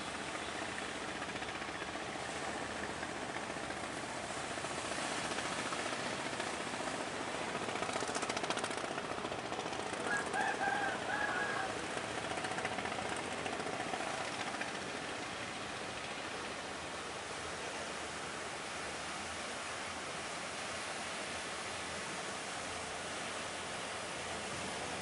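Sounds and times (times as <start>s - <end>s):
waves breaking: 0.0s - 25.0s
boat engine chugging: 0.1s - 16.4s.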